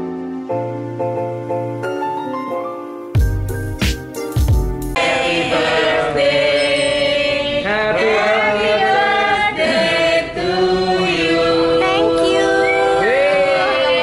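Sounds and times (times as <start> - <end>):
group singing a birthday song: 4.9 - 14.0.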